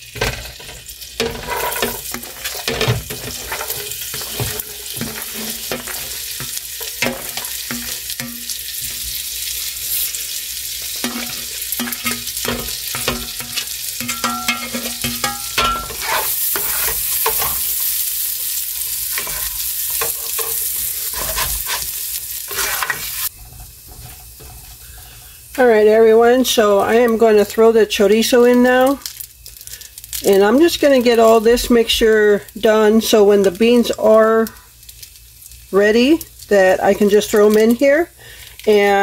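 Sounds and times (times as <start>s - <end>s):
onions frying in grease: 0.0s - 39.0s
spoon scraping a pan: 0.2s - 10.2s, 10.8s - 18.0s, 18.8s - 25.4s.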